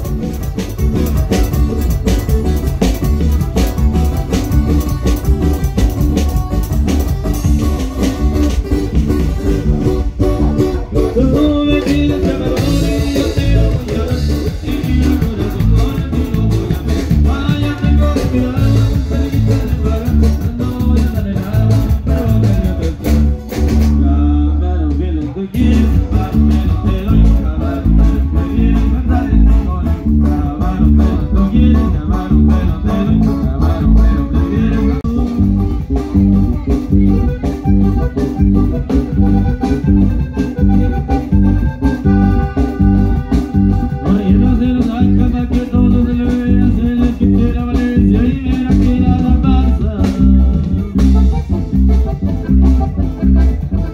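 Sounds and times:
band music over loudspeakers: 0.0s - 53.9s
heavy bass rhythm: 0.0s - 53.9s
plucked guitars: 0.0s - 53.9s
person singing: 9.2s - 51.4s.

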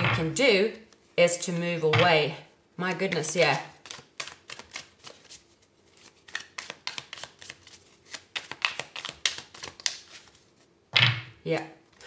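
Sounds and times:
cards being shuffled: 3.1s - 11.1s.

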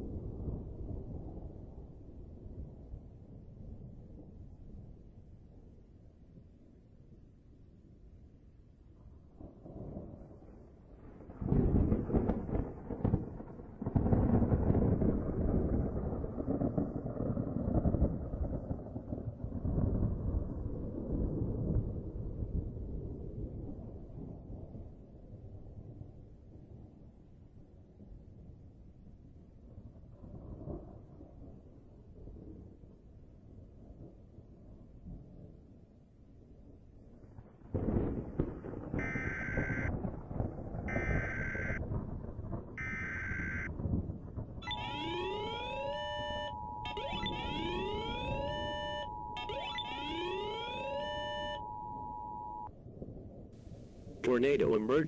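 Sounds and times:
thunder rumbling: 0.0s - 5.8s, 9.0s - 25.0s, 37.2s - 55.0s
two-tone digital screech: 44.6s - 51.6s.

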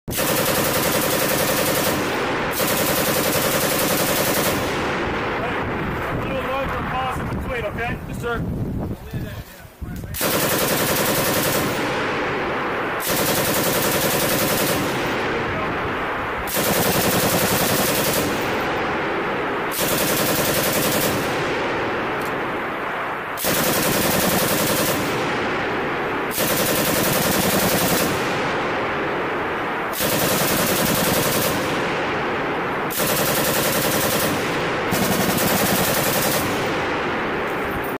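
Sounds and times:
machine gun firing bursts: 0.1s - 5.2s, 10.2s - 12.4s, 13.0s - 15.3s, 16.4s - 18.9s, 19.7s - 21.8s, 23.4s - 25.6s, 26.3s - 28.7s, 29.9s - 32.1s, 32.9s - 37.0s.

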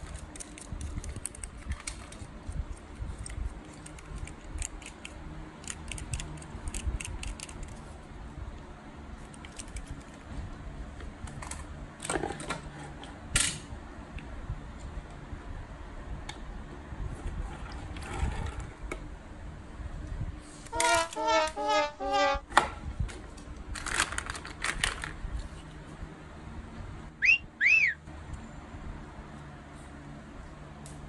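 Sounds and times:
toy car clicking in fingers: 3.2s - 7.8s.

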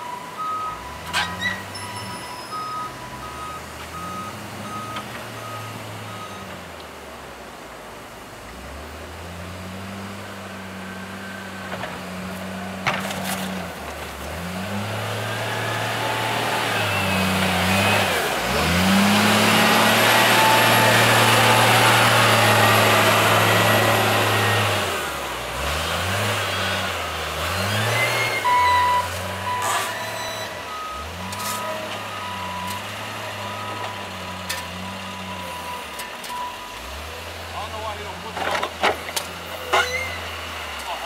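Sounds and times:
loader diesel engine revving: 9.1s - 41.0s.

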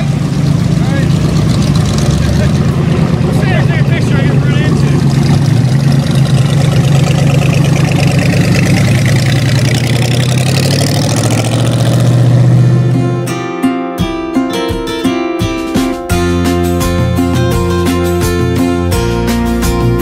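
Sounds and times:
hot rod engine running loudly: 0.0s - 13.3s.

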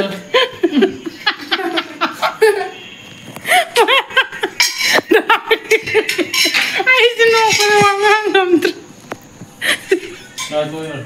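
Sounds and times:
woman laughing: 0.3s - 2.8s, 3.5s - 7.3s, 9.6s - 10.4s
people talking: 5.2s - 8.8s.

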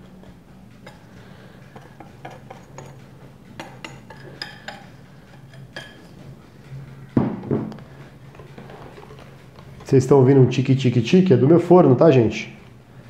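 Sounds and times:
oven timer ticking: 0.0s - 13.0s
glass bowl knocking on counter: 7.2s - 7.7s.

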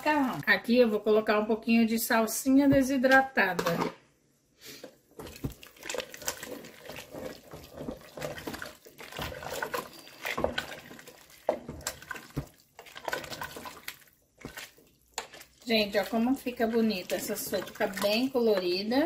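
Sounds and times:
soup sloshing: 5.1s - 19.0s.

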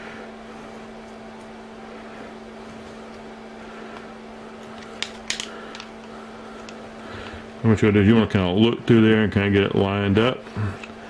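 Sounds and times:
low room hum: 0.0s - 11.0s
wire leads clicking and rattling: 4.6s - 6.8s.

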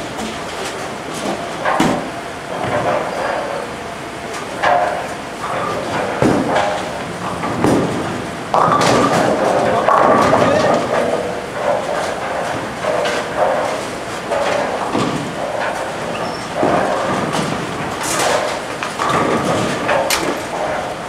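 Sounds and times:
bowling pins crashing: 4.6s - 20.9s
bowling ball rolling on wooden lane: 4.6s - 21.0s.

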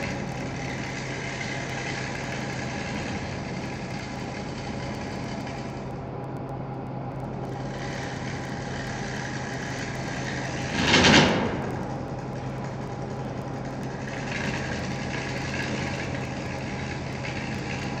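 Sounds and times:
tool cutting spinning wood: 0.0s - 6.0s, 7.3s - 18.0s
lathe motor humming: 0.0s - 18.0s
loud rasp of tool: 7.5s - 11.7s.

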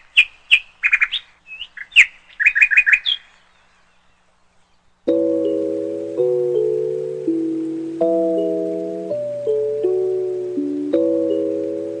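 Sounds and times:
small bird chirping: 0.0s - 5.5s
sustained music notes: 5.1s - 12.0s.

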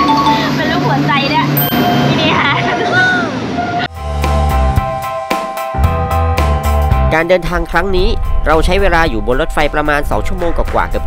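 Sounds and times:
music with deep bass and beat: 3.9s - 11.0s.

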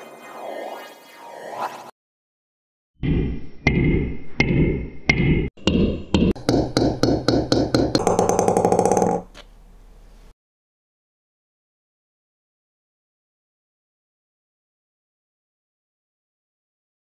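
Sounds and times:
ping pong ball bouncing on table: 6.2s - 9.3s.

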